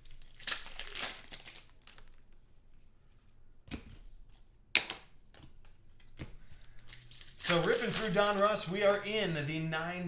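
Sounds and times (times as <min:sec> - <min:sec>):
foil wrapper tearing: 0:00.0 - 0:02.2, 0:06.8 - 0:08.9
cards rustling and clicking: 0:00.0 - 0:02.5, 0:03.7 - 0:09.1.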